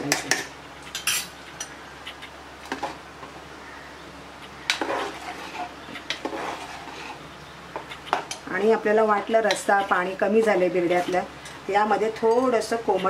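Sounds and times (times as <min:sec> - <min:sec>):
metal ladle scraping pot: 0:00.3 - 0:01.3, 0:04.7 - 0:07.2.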